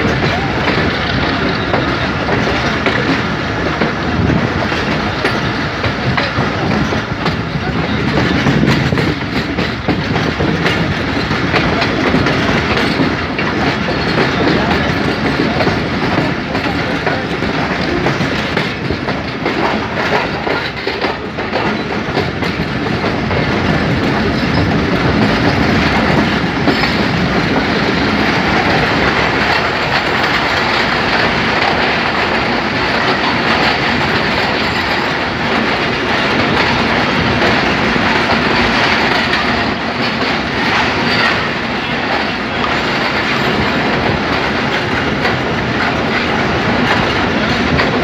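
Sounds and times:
train wheels clattering on rails: 0.0 - 48.0.

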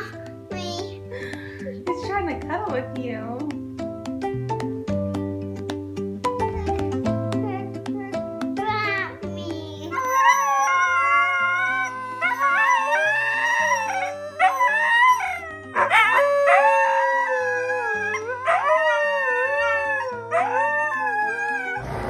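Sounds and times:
background music: 0.0 - 22.0
huskies howling: 10.0 - 22.0.

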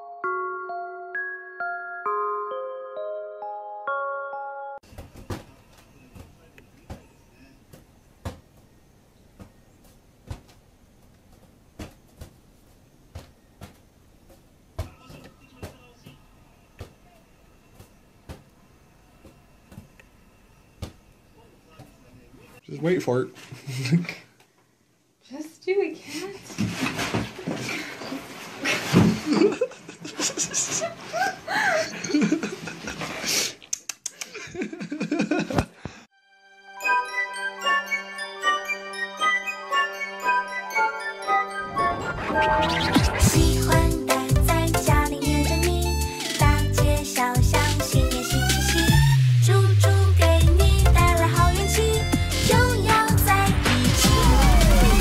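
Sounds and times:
people laughing hard: 29.2 - 33.2, 34.3 - 35.8.

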